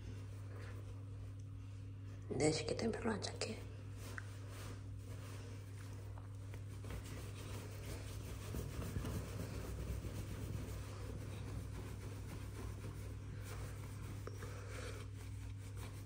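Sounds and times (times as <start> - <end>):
steady low hum: 0.0 - 16.0
towel rubbing wet fur: 3.6 - 16.0.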